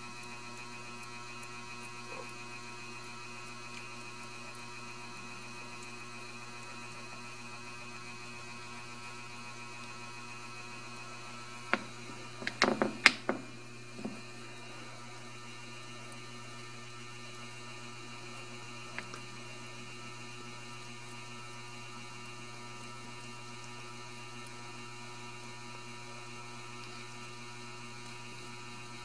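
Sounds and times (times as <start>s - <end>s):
electrical mains hum: 0.0s - 29.0s
sharp clicks and knocks: 11.7s - 14.3s.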